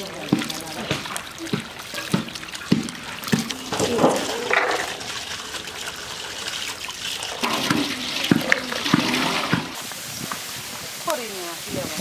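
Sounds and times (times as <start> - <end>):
water trickling and splashing: 0.0 - 12.0.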